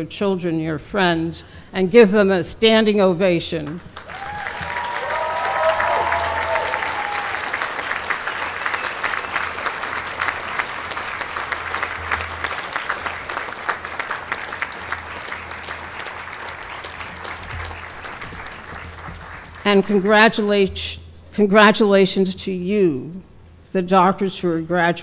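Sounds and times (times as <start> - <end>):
crowd clapping: 3.6 - 20.2.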